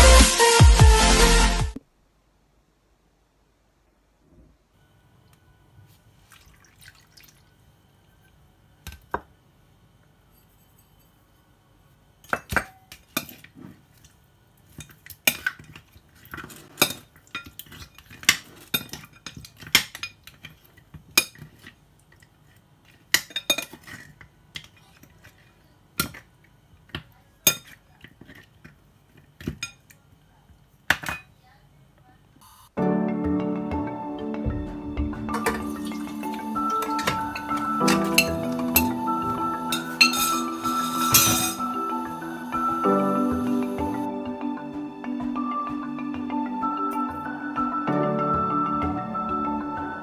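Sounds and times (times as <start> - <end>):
liquid pouring and dripping: 6.2 - 7.6, 35.4 - 38.6.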